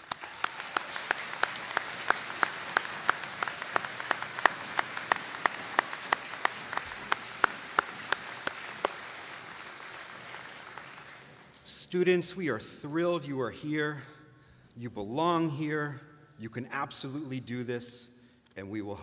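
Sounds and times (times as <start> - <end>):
audience applauding: 0.0 - 11.6
close hand claps: 0.0 - 11.7.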